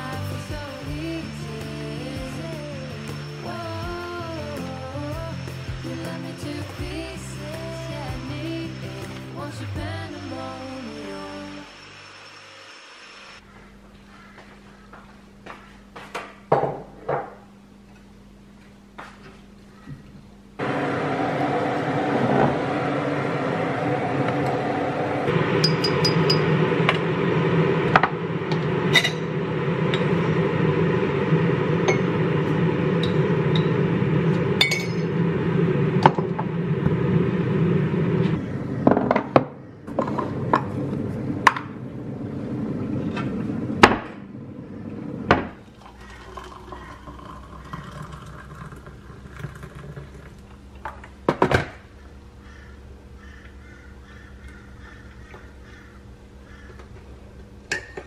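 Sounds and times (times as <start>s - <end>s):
steady rushing hum: 20.4s - 46.2s.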